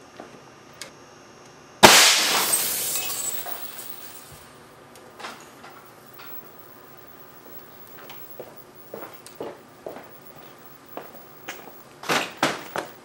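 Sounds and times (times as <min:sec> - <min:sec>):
air cannon blast: 0:01.8 - 0:03.4
glass shattering and falling: 0:01.8 - 0:04.5
small glass clinks: 0:02.3 - 0:04.4.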